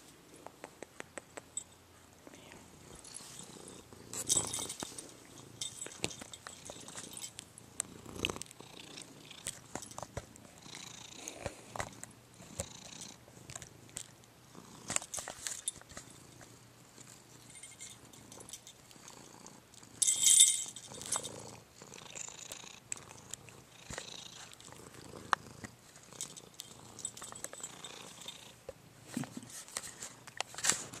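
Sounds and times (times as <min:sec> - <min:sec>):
cat purring: 0:02.4 - 0:15.2, 0:15.9 - 0:20.0, 0:20.8 - 0:29.5
handling rustling and knocks: 0:02.9 - 0:07.5, 0:09.4 - 0:10.6, 0:14.9 - 0:16.5.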